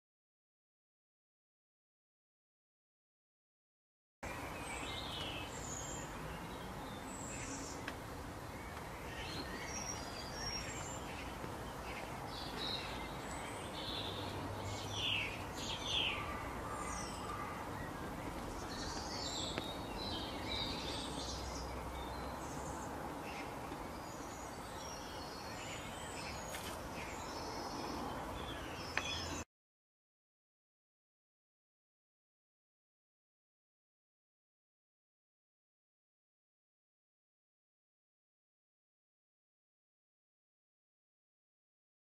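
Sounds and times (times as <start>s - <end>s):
outdoor background hiss: 4.2s - 29.4s
birds chirping: 4.2s - 29.5s.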